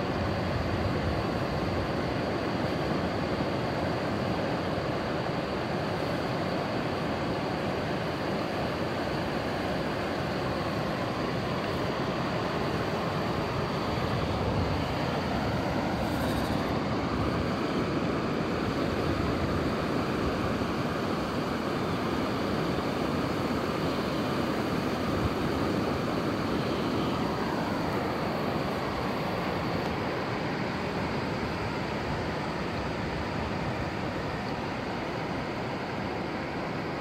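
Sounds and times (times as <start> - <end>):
surf and wind rushing: 0.0 - 37.0.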